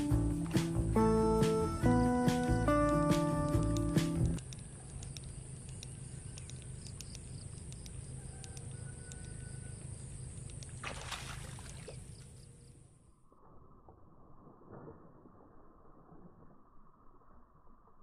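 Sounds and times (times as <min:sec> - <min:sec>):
faint ticks: 0:02.4 - 0:10.8.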